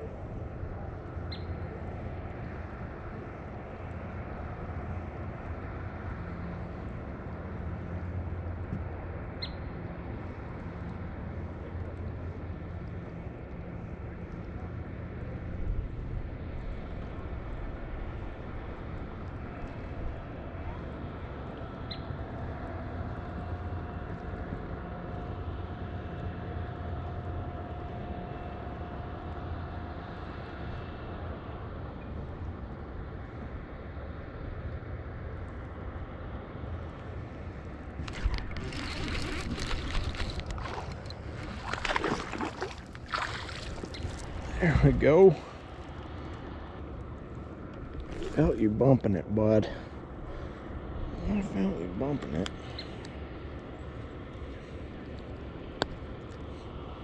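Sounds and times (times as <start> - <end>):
faint steady whine: 0.0 - 57.0
boat motor humming: 35.8 - 56.9
fishing reel cranking: 38.1 - 42.3.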